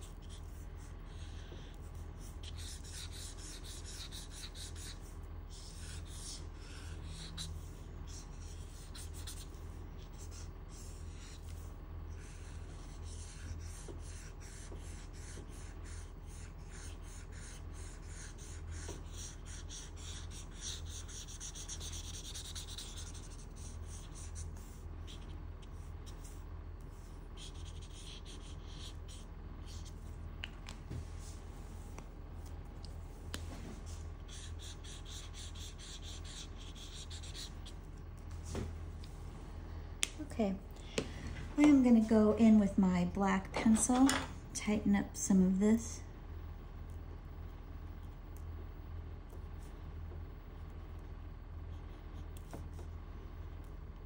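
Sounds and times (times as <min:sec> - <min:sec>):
marker rubbing on paper: 0:00.0 - 0:30.1, 0:33.8 - 0:37.8
steady low hum: 0:00.0 - 0:54.0.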